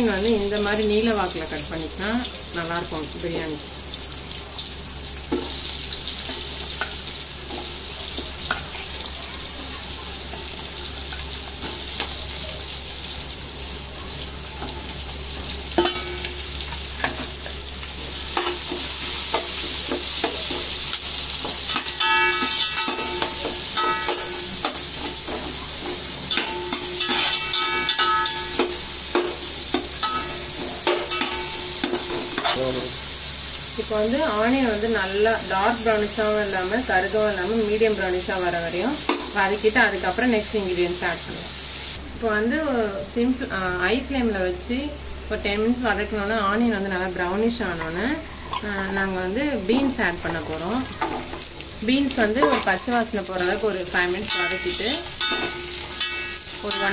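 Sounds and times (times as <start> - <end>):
onions sizzling in hot oil: 0.0 - 56.9
spoon scraping a metal pot: 21.4 - 28.7.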